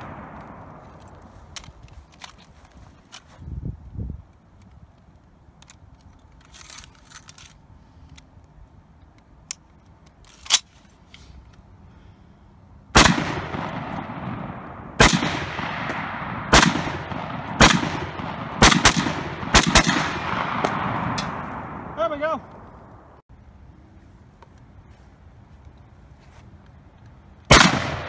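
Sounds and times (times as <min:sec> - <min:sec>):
rifle shots echoing: 0:00.0 - 0:01.3, 0:12.9 - 0:22.3, 0:27.5 - 0:28.0
rifle handling clicks: 0:00.2 - 0:03.3, 0:04.3 - 0:11.6.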